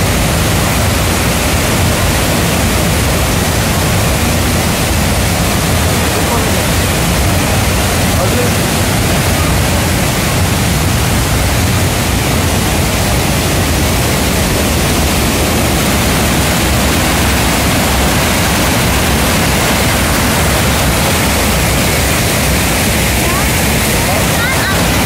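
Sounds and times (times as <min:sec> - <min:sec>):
waterfall rushing over rocks: 0:00.0 - 0:25.0.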